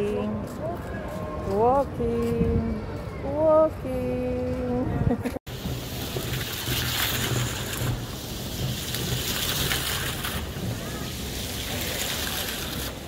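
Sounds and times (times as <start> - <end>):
fountain water splashing: 5.5 - 13.0.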